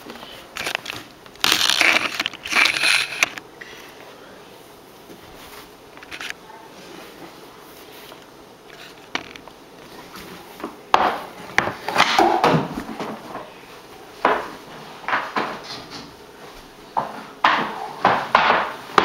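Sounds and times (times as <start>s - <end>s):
hockey stick and puck on wood floor: 10.6s - 13.5s, 14.2s - 16.1s, 17.0s - 19.0s.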